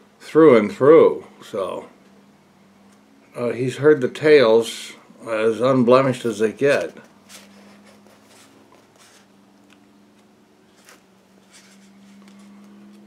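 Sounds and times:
low electrical hum: 0:00.0 - 0:13.0
soft rustles: 0:06.7 - 0:09.3, 0:10.1 - 0:13.0.

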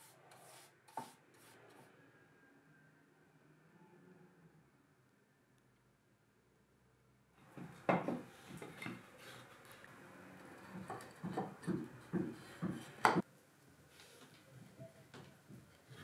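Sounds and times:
wooden knocks and clacks: 0:07.5 - 0:09.0, 0:10.6 - 0:13.2.

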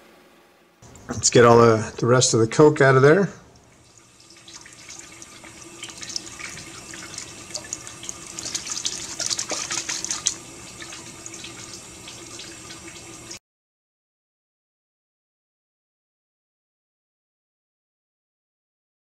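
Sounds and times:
faucet running into sink: 0:03.5 - 0:13.4
water splashing in a can: 0:03.6 - 0:13.4.

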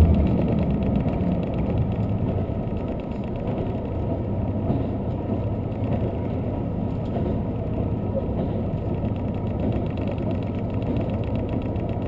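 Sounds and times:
train rumbling from inside carriage: 0:00.0 - 0:12.0.

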